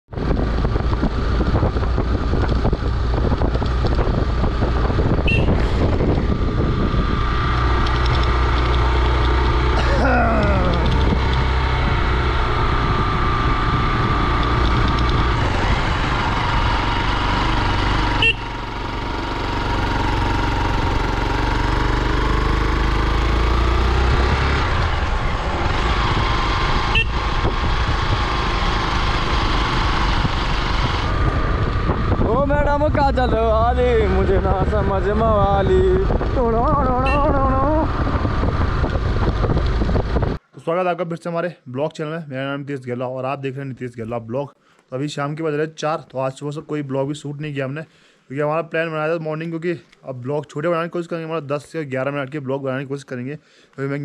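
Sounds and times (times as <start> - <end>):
wind and road noise: 0.0 - 40.9
motorcycle engine running: 0.1 - 40.4.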